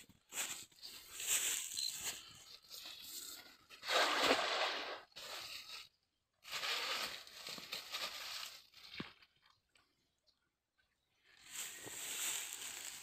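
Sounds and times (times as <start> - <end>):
net splashing into water: 3.8 - 5.1
net rustling while drawn in: 11.6 - 13.0.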